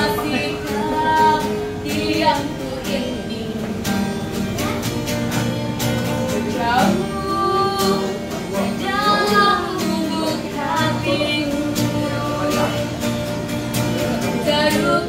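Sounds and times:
woman singing: 0:00.0 - 0:13.0, 0:14.0 - 0:15.0
strummed acoustic guitar: 0:00.0 - 0:15.0.

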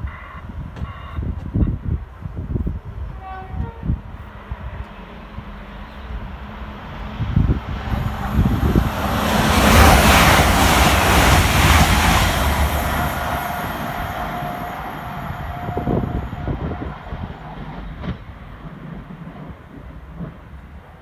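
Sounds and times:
express train passing: 0:01.8 - 0:21.0.

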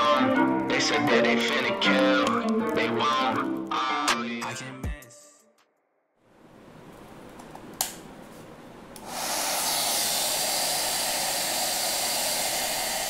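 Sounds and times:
hair dryer switch click: 0:07.8 - 0:08.0
hair dryer blowing: 0:09.0 - 0:13.0.

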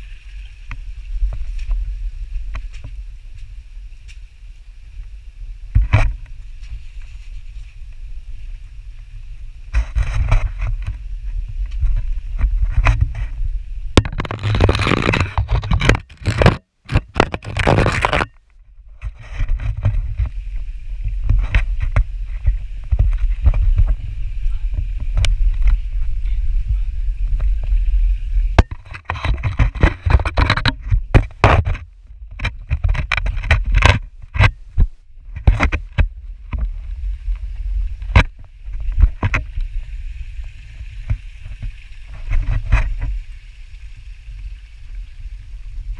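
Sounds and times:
microphone rubbing: 0:00.0 - 0:43.3
low rumble: 0:18.6 - 0:28.7.

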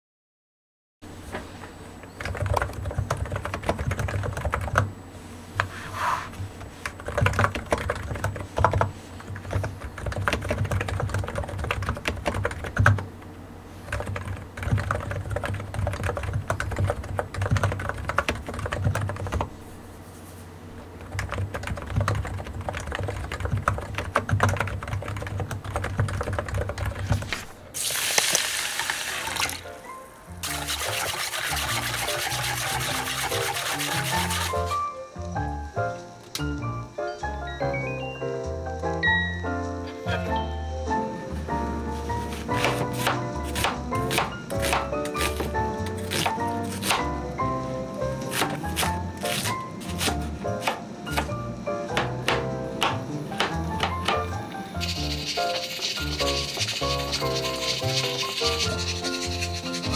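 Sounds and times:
typing on computer keyboard: 0:02.2 - 0:04.9, 0:06.9 - 0:13.1, 0:13.9 - 0:19.5, 0:21.1 - 0:27.3.

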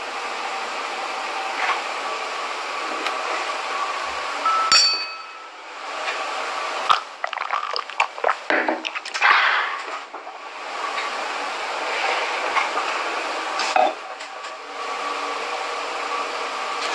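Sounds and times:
wine glass clink: 0:04.4 - 0:05.6.

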